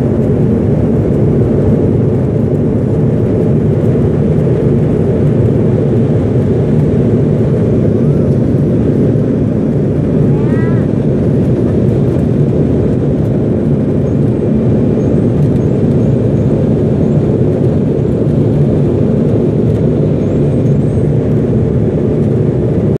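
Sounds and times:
aircraft cabin engine rumble: 0:00.0 - 0:23.0.

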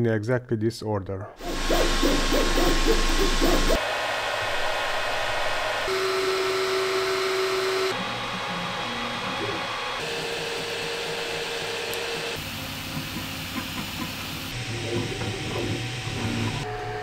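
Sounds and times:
whining tones: 0:01.4 - 0:12.5
printer cooling fans whirring: 0:01.4 - 0:17.0.

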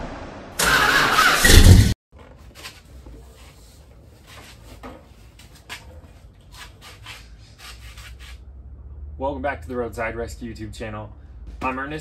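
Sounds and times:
loud full sound: 0:00.0 - 0:02.0
rubbing and knocking handling noises: 0:02.1 - 0:08.5.

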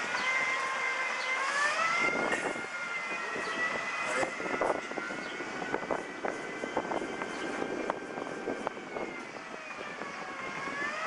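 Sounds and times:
city background noise: 0:00.0 - 0:11.0
high-pitched two-tone whine: 0:00.0 - 0:11.0.

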